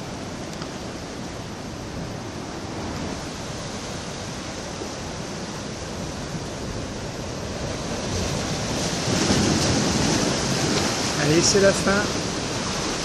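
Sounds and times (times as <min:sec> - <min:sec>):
surf washing against rocks: 0:00.0 - 0:13.0.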